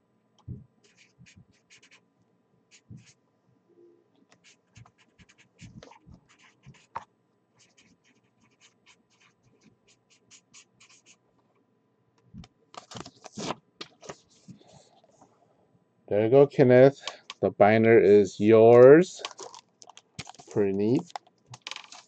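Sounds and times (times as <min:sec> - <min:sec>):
pen scratching on paper: 0:00.8 - 0:02.0, 0:02.7 - 0:03.2, 0:04.4 - 0:07.0, 0:07.6 - 0:11.2
scraping and handling noise: 0:12.4 - 0:15.4, 0:18.5 - 0:22.0.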